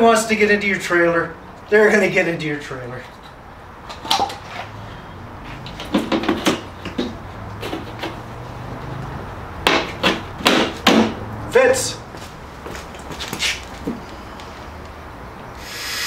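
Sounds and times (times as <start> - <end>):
plastic vent knocks and clatters: 5.7 - 8.2.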